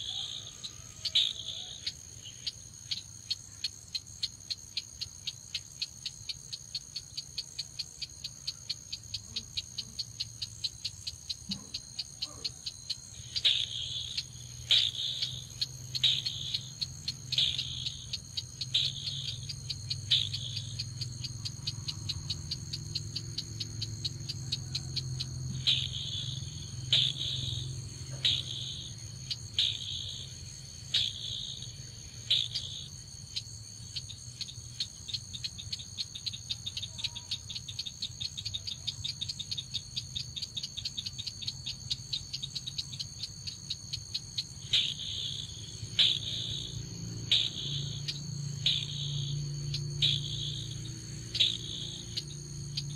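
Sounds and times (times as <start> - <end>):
high insect-like whine: 0.0 - 52.9
bird clicking calls: 26.9 - 27.5, 46.0 - 46.6.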